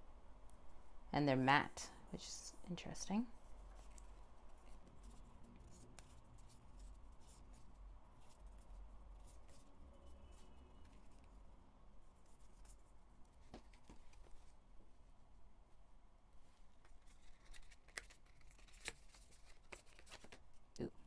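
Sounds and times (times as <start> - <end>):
cards clicking and rustling: 16.8 - 20.5.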